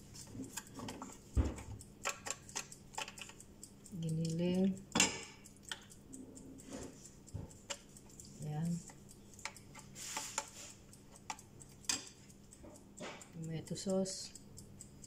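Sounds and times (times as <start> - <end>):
light clicks and knocks: 0.2 - 3.4.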